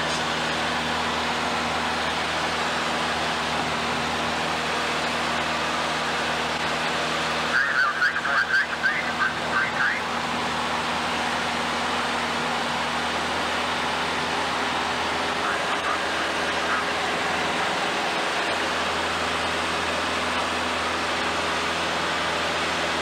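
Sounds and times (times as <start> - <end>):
aircraft engine drone: 0.0 - 23.0
muffled talk: 7.5 - 10.2, 15.4 - 16.9.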